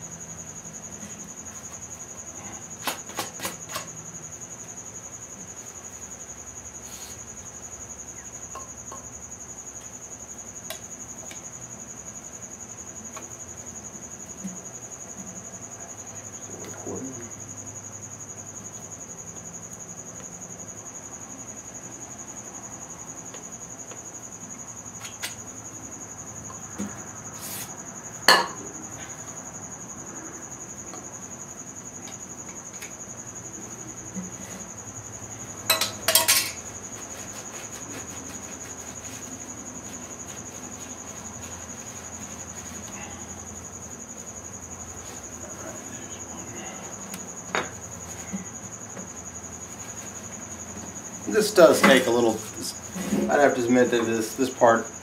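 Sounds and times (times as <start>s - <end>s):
metal clinks and knocks: 35.7s - 36.7s.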